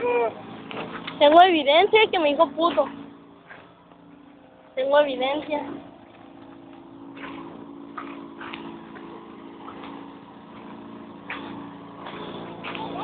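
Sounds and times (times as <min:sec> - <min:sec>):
low mechanical hum: 0:00.0 - 0:13.0
short scuffs and clicks: 0:06.1 - 0:13.0.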